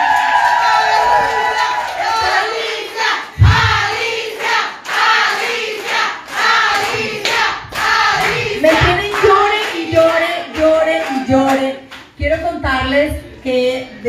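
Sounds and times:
people clapping along: 0.0s - 12.4s
women singing together: 2.1s - 11.6s
loud low thump: 3.4s - 3.9s, 7.6s - 9.1s.

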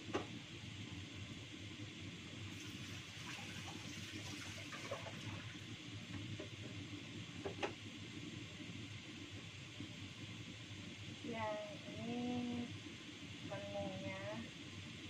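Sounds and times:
tap water running into sink: 2.6s - 5.6s.

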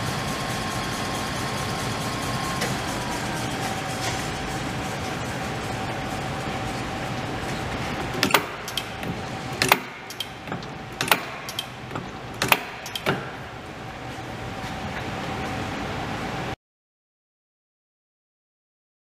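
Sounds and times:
metallic clunk of turret indexing: 8.2s - 13.4s.

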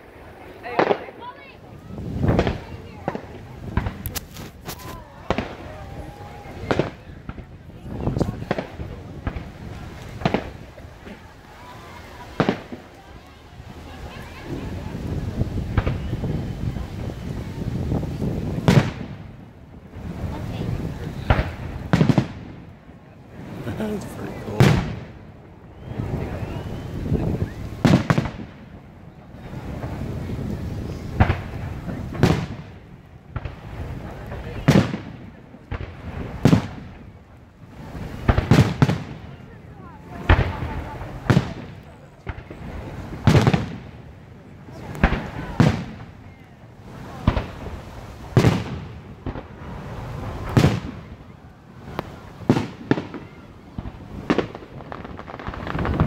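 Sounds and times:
firework shells bursting: 2.2s - 5.7s.

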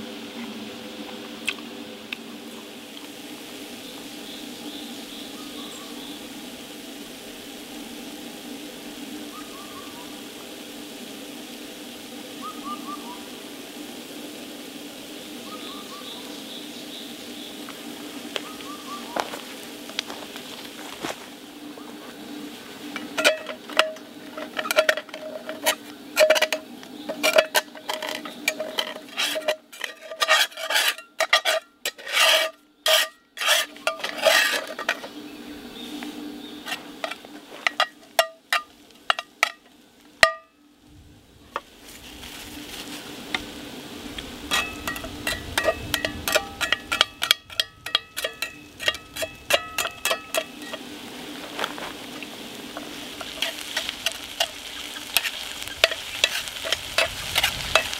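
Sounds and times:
food sizzling in pan: 0.0s - 40.5s, 41.2s - 57.9s
spatula scraping cast-iron skillet: 22.8s - 35.2s, 36.6s - 39.6s, 44.4s - 57.9s.

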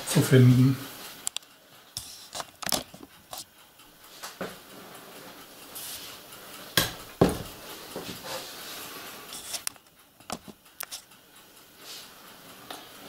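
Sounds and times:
small items clicking on table: 9.5s - 11.1s.

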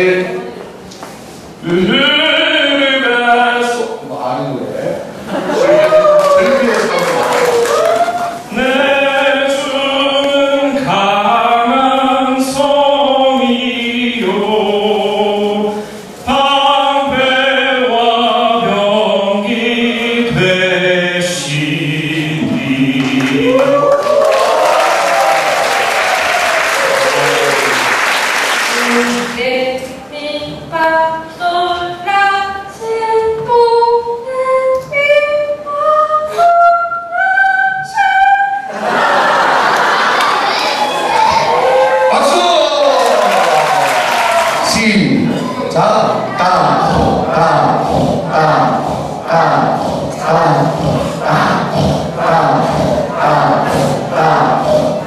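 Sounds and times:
cheering and applause: 5.5s - 8.4s, 23.2s - 29.4s, 39.0s - 45.0s
voice singing a scale: 5.6s - 24.6s, 44.6s - 55.0s
voices singing long notes: 46.2s - 55.0s.

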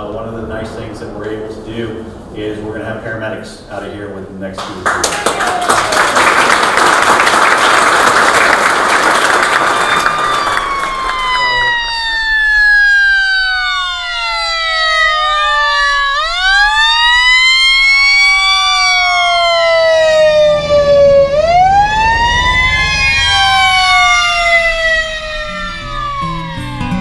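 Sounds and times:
truck engine rumbling: 0.0s - 4.7s, 8.8s - 27.0s
fire engine siren wailing: 9.1s - 27.0s.

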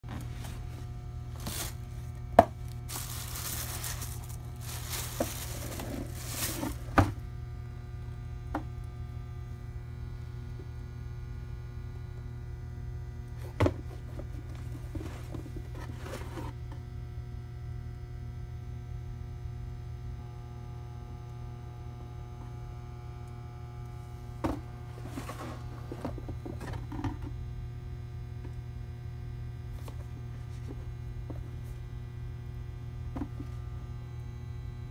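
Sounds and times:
steady low hum: 0.0s - 34.9s
paper rustling: 0.1s - 7.2s
cardboard knocks: 2.4s - 7.2s.

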